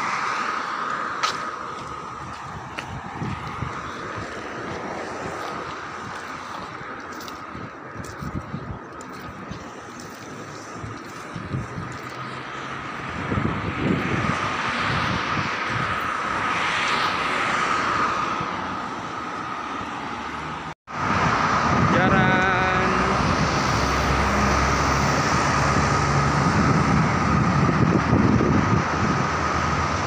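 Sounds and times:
rush of passing vehicles: 0.0s - 30.0s
vehicle passing by: 10.4s - 30.0s.

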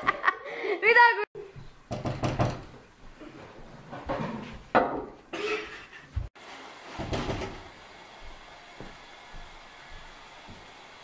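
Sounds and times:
glass door knocking and rattling: 1.9s - 2.7s.

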